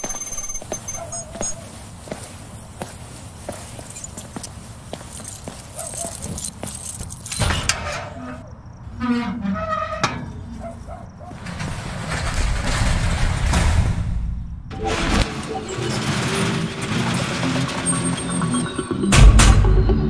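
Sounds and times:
keys jangling: 0:00.0 - 0:02.3, 0:03.5 - 0:07.7
metal garage door rolling open: 0:11.2 - 0:19.3.

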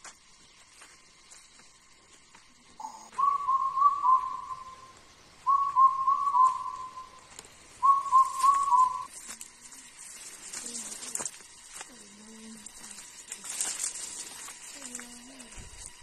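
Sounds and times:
bird whistling call: 0:02.8 - 0:09.1.

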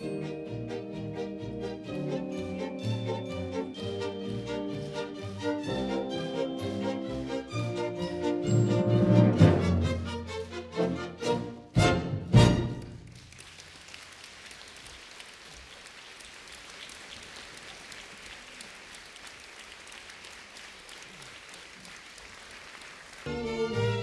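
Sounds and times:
audience applauding: 0:12.7 - 0:24.0.

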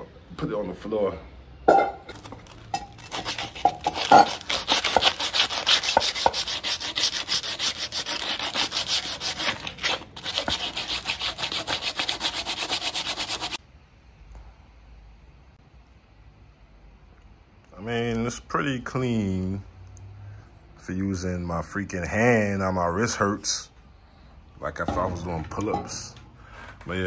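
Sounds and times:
sandpaper rubbing on metal: 0:03.0 - 0:13.6.

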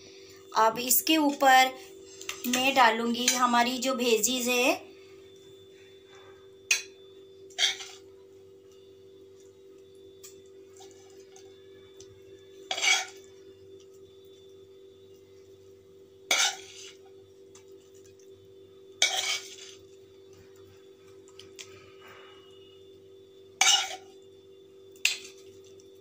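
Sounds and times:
faint steady hum: 0:00.0 - 0:26.0
steel spoon scraping frying pan: 0:07.5 - 0:08.0, 0:12.7 - 0:13.2, 0:16.3 - 0:17.0, 0:19.0 - 0:19.8, 0:23.6 - 0:24.1.

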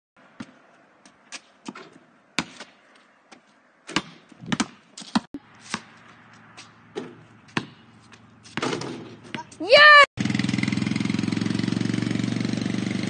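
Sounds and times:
basketball bouncing on asphalt: 0:00.2 - 0:09.6
basketball striking hoop: 0:06.9 - 0:07.8.

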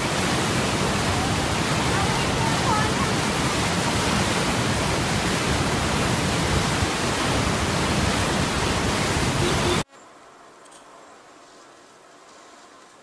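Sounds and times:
water rushing: 0:00.0 - 0:09.9.

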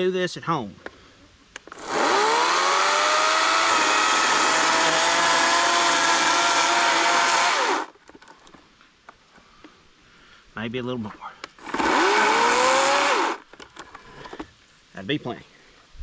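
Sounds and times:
electric chainsaw cutting branch: 0:01.6 - 0:08.0, 0:11.6 - 0:13.5.

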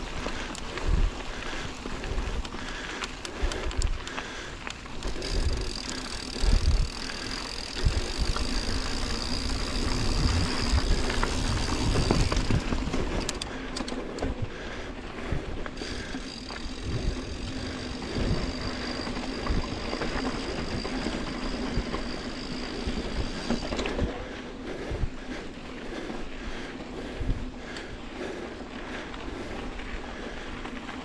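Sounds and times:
bike tyre and drivetrain rattle: 0:00.0 - 0:31.0
sharp clicks: 0:02.4 - 0:06.8, 0:12.2 - 0:14.3
wind on microphone: 0:09.6 - 0:13.2.

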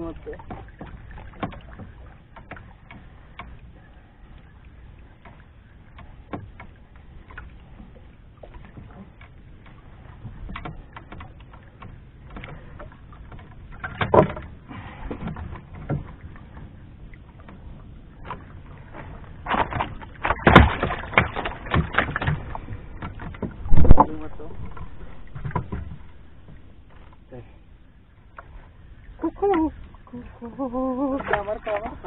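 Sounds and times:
clicks and knocks from handling fish: 0:00.4 - 0:03.6, 0:05.2 - 0:16.7, 0:17.4 - 0:27.2.

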